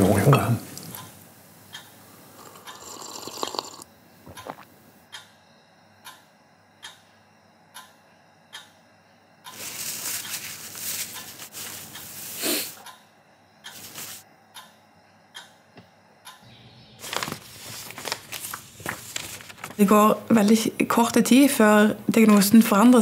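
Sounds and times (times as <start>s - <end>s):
sip from a cup: 2.4s - 4.7s
soft ticks: 6.0s - 6.2s, 7.8s - 8.7s, 14.6s - 14.8s
sniff: 12.3s - 12.8s.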